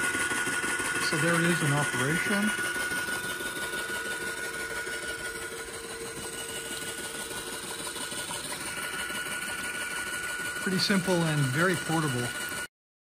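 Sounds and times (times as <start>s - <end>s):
shaking table mechanical chatter: 0.0s - 12.7s
water pouring into a tub: 6.0s - 12.6s.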